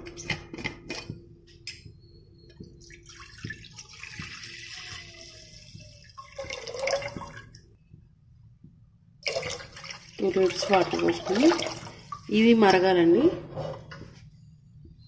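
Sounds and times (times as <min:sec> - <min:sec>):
water pouring into a pot: 0:02.8 - 0:07.6, 0:09.2 - 0:12.5.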